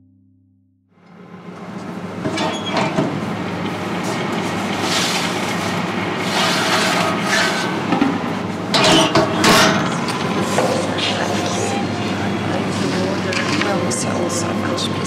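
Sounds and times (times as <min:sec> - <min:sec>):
oven humming: 0:01.0 - 0:15.0
oven rack and tray clattering: 0:06.4 - 0:10.6.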